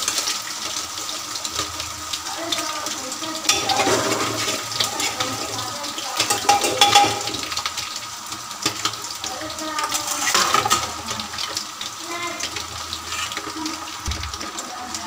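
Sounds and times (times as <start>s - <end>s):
hot oil sizzling and crackling: 0.0s - 15.0s
metal spoon scraping and clinking: 9.9s - 10.9s, 13.1s - 13.5s.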